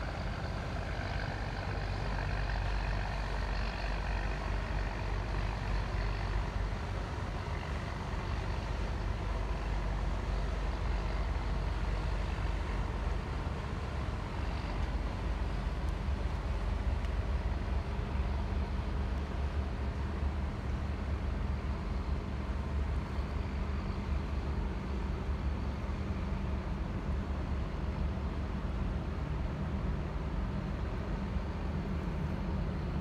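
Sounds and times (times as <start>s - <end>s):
deep ship engine rumble: 0.0s - 33.0s.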